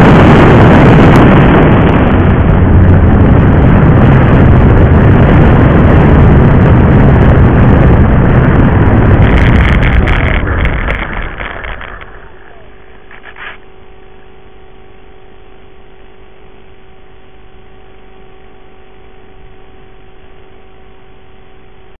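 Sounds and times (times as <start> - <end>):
faint steady whine: 0.0 - 22.0
plane rolling on grass: 7.5 - 13.6
brief rustle: 9.2 - 13.6.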